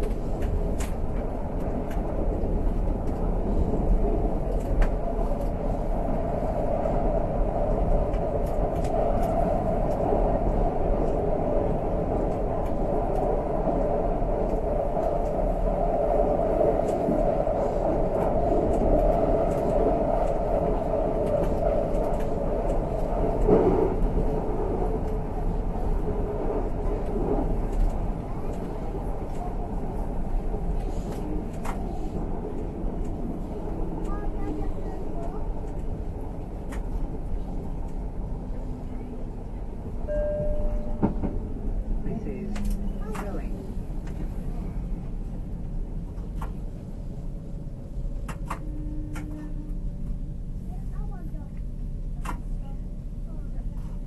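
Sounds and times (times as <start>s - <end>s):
train wheels rumbling on rail: 0.0s - 54.0s
faint clicks: 35.2s - 37.0s.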